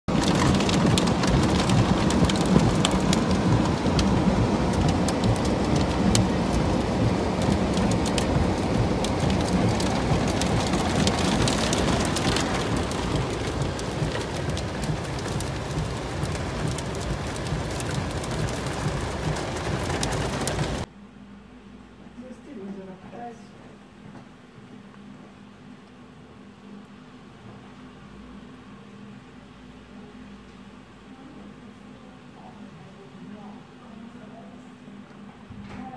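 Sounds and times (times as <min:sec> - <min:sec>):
hail and rain downpour: 0:00.1 - 0:20.9
hailstones ticking on hard surfaces: 0:00.1 - 0:20.9.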